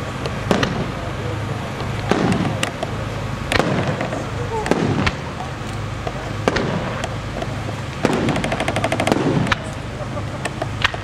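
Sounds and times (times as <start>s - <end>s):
fireworks shells banging: 1.8s - 11.0s
rapid run of small bangs: 2.0s - 5.4s, 6.4s - 7.2s, 8.0s - 9.7s.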